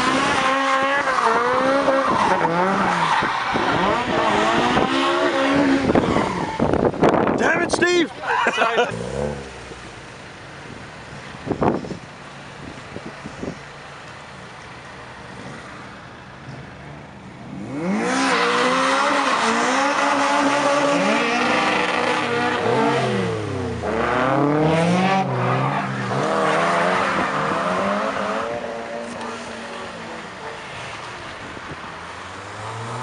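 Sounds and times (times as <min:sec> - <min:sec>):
car engine revving hard: 0:00.0 - 0:06.7, 0:08.8 - 0:09.8, 0:17.5 - 0:30.1.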